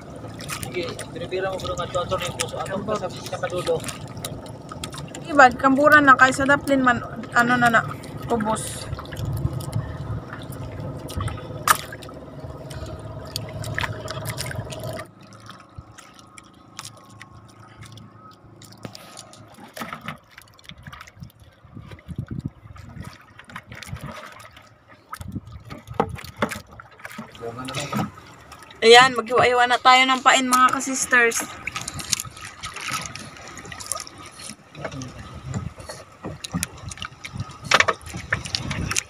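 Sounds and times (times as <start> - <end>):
steady low hum: 0.0 - 20.1
water dripping and splashing: 0.0 - 39.0.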